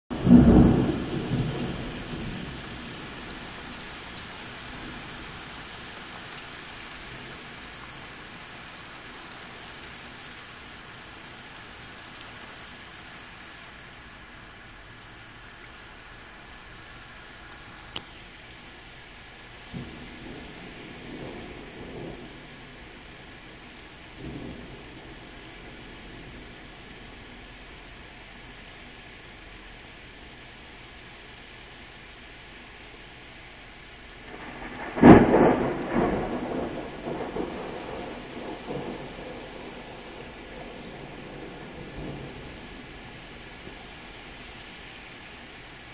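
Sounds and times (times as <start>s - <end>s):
thunder rumbling: 0.1s - 5.6s, 19.6s - 27.4s, 34.2s - 44.4s
heavy rain: 0.1s - 45.9s.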